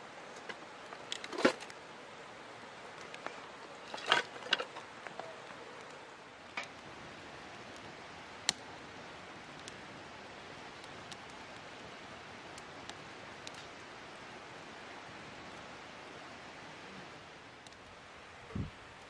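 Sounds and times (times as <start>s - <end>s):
fire crackling and hissing: 0.0s - 19.0s
wood snaps and pops: 8.4s - 8.7s.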